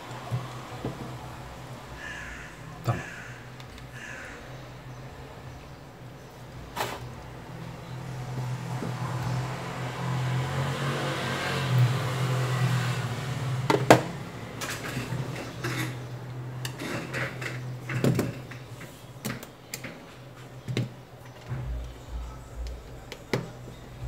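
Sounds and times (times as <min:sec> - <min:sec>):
low hum with rushing noise: 0:21.5 - 0:24.0.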